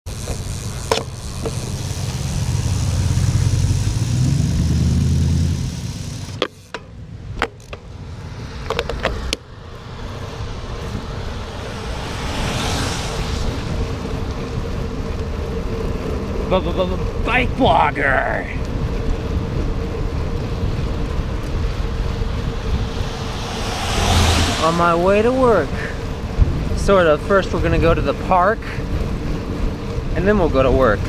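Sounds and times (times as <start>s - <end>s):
wet tyres hissing: 0.1s - 6.4s, 9.8s - 15.8s, 19.8s - 27.6s
wind rumble on microphone: 8.6s - 16.4s, 18.5s - 31.0s.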